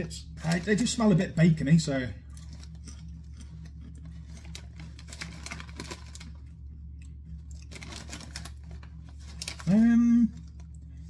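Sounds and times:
low steady hum: 0:00.0 - 0:11.0
crisp being chewed: 0:02.2 - 0:11.0.

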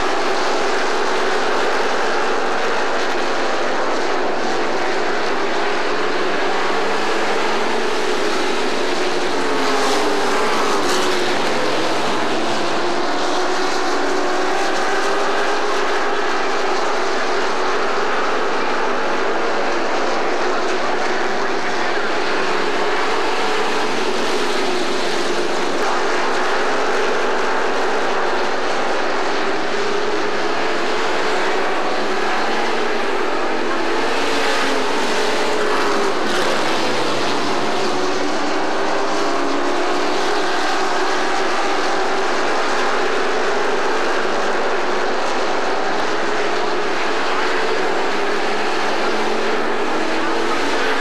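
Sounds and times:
race truck engines droning: 0:00.0 - 0:51.0.

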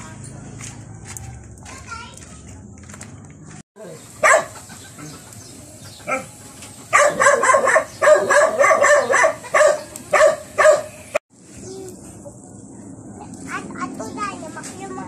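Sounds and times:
dog barking: 0:04.2 - 0:04.6, 0:06.1 - 0:06.3, 0:06.9 - 0:11.0.

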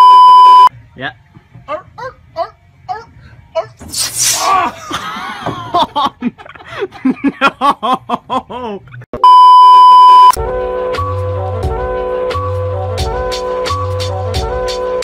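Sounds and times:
test-pattern beep: 0:00.0 - 0:00.7, 0:09.2 - 0:10.4
person crying out: 0:01.7 - 0:05.0
music with held tones and bass: 0:10.4 - 0:15.0.

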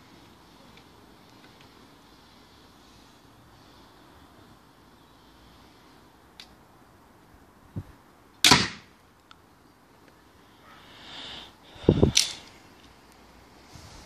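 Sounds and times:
crossbow shot crack: 0:08.4 - 0:09.0.

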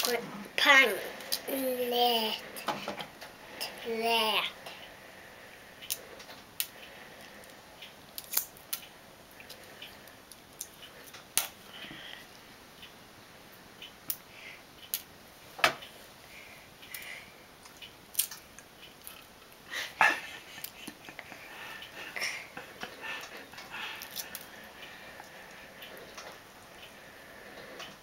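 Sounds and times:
eggshell cracking: 0:08.2 - 0:08.7.

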